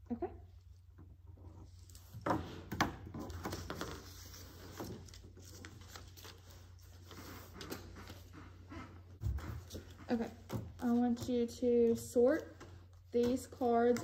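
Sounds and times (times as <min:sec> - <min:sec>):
paper sheets rustling: 0:03.3 - 0:08.3.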